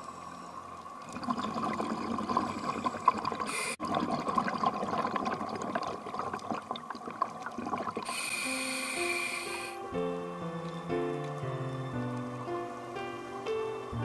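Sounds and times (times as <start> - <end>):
underwater bubbling and crackling: 0.1 - 9.5
soft music: 8.1 - 14.0.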